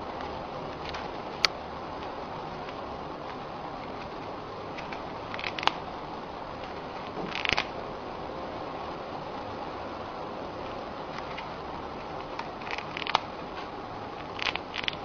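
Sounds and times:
steady hiss: 0.0s - 15.0s
hamster crunching cracker: 3.8s - 5.8s, 7.1s - 7.7s, 12.2s - 15.0s.

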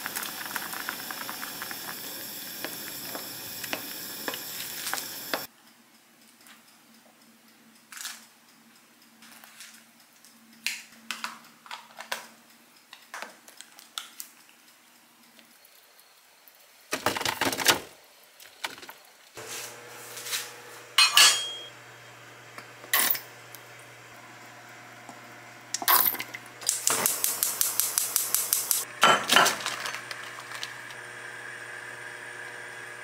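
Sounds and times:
cookware handling: 21.0s - 21.7s.

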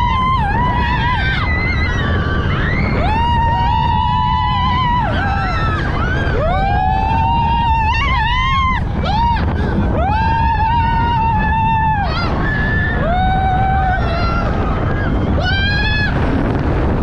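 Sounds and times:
riders screaming: 0.0s - 16.8s
wind on microphone: 0.0s - 17.0s.

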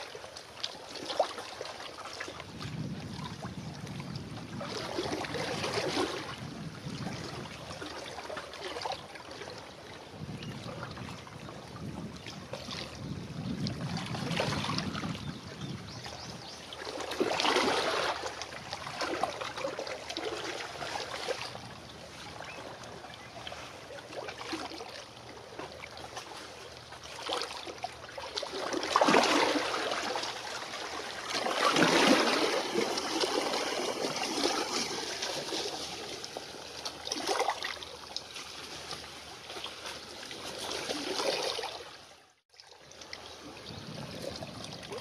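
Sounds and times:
waves splashing on rocky shore: 28.4s - 36.2s.

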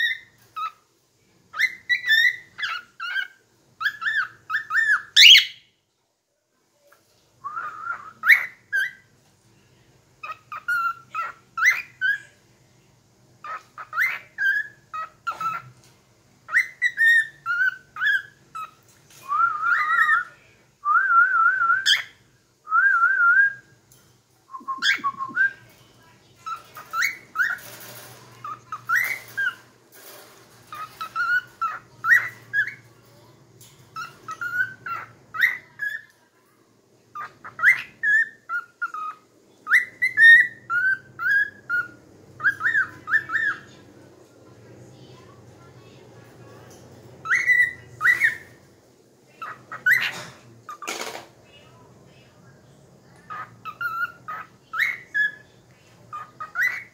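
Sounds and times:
cockatiel whistling: 7.4s - 9.0s, 16.5s - 20.3s, 24.5s - 25.6s.

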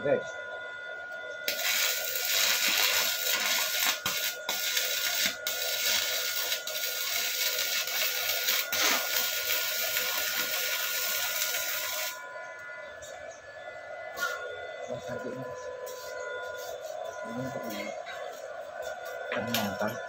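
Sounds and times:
welding arc crackling and hissing: 1.5s - 12.2s.

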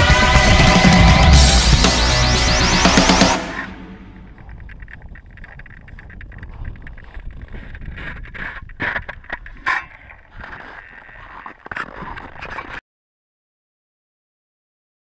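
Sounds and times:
skis sliding over snow: 4.3s - 12.8s.

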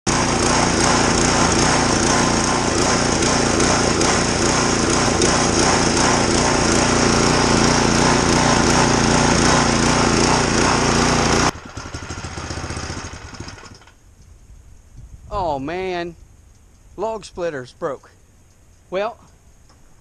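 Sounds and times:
small gasoline engine running: 0.1s - 14.0s
engine coasting to a stop: 0.1s - 14.4s.

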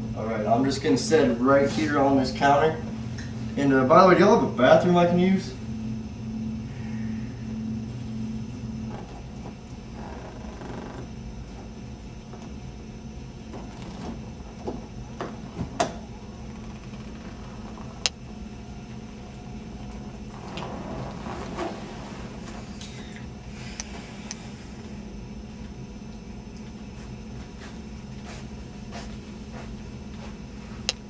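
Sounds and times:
low steady hum: 0.0s - 31.0s.

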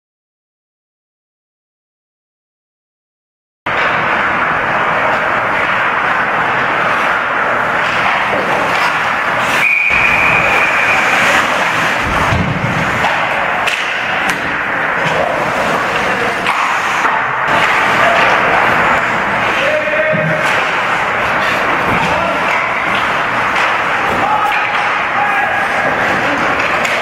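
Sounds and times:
rink ambience: 3.7s - 27.0s
hockey sticks and puck knocking: 4.9s - 27.0s
high steady whistle: 9.5s - 11.2s.

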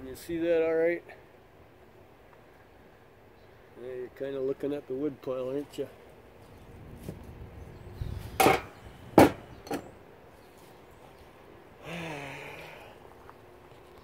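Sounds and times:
hard objects knocking: 8.4s - 9.8s.

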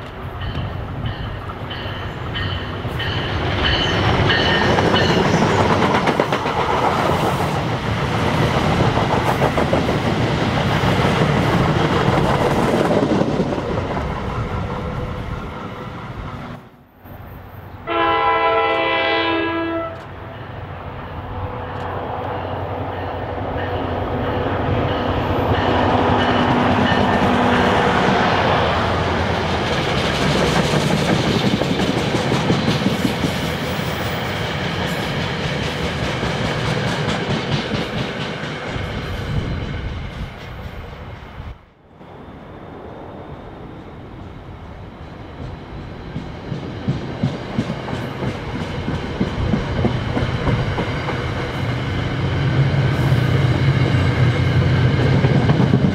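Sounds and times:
train wheels clickety-clack: 0.0s - 16.4s, 29.1s - 41.4s, 43.8s - 52.1s, 53.0s - 55.9s
train passing with rumble: 0.0s - 55.9s
distant train horn blast: 17.8s - 20.6s.

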